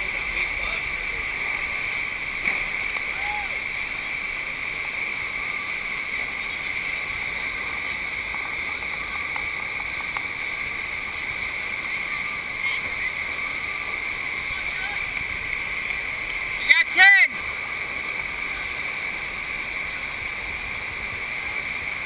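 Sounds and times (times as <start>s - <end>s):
water rushing: 0.0s - 22.0s.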